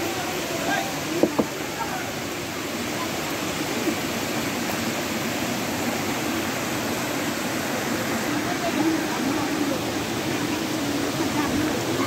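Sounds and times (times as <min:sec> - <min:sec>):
small waterfall: 0:00.0 - 0:12.0
stream rushing over stones: 0:00.0 - 0:12.0.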